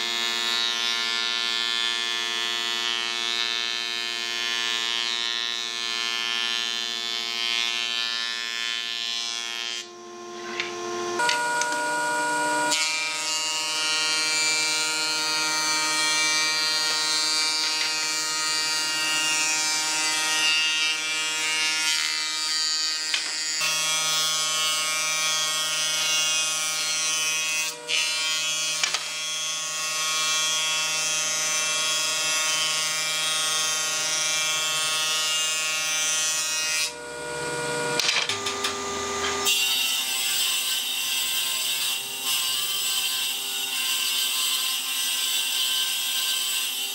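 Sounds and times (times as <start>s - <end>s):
planer shaving wood: 0.0s - 46.9s
steady machine tone: 11.2s - 12.7s.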